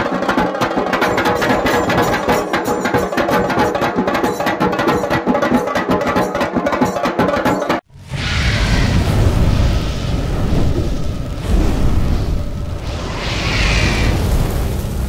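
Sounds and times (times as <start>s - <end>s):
dhol drums played with sticks: 0.0s - 7.8s.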